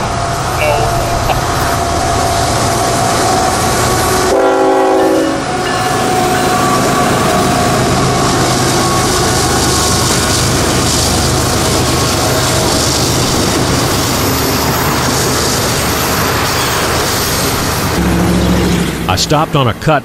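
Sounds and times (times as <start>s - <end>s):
train wheels rolling: 0.0s - 19.4s
diesel locomotive engine rumble: 0.0s - 20.0s
train air horn chord: 4.2s - 7.8s.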